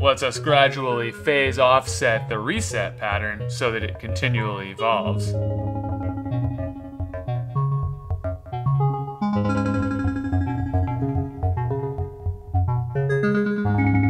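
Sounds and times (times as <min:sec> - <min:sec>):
synthesizer oscillator tones: 0:05.0 - 0:14.0.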